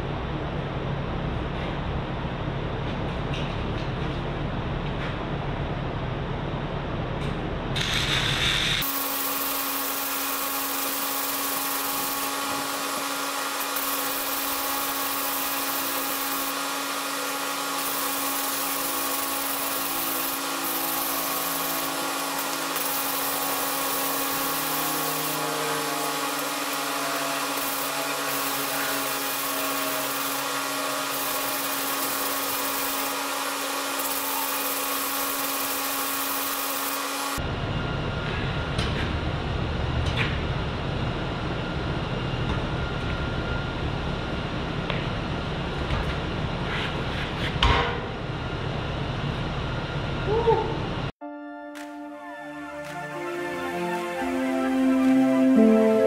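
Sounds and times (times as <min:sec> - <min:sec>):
power tool whining: 0:07.8 - 0:37.4.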